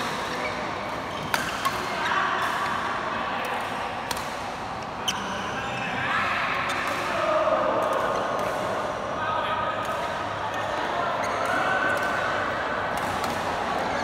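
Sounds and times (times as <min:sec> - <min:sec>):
racket hitting shuttlecock: 0:03.4 - 0:04.5.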